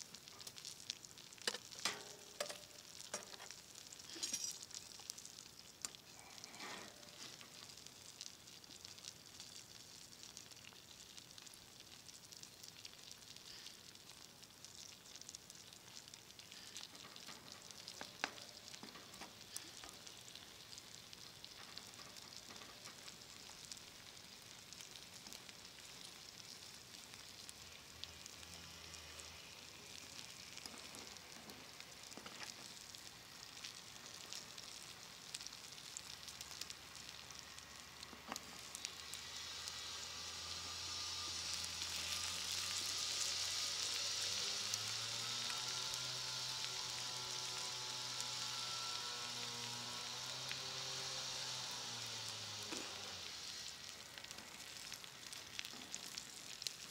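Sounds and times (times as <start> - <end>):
food sizzling in a pan: 0.0 - 56.9
wood fire crackling: 0.0 - 56.9.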